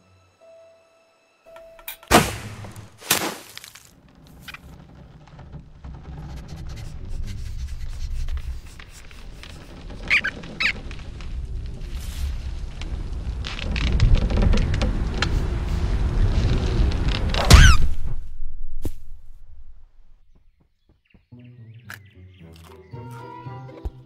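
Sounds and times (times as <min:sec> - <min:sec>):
low rumble: 0:04.0 - 0:20.4
cartoon rodent squeaks: 0:10.1 - 0:10.8, 0:17.5 - 0:17.9.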